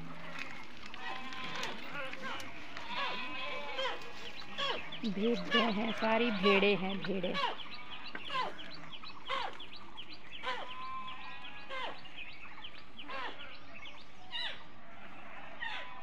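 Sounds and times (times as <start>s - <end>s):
sheep bleating: 0.0s - 7.6s
small birds chirping: 0.0s - 16.0s.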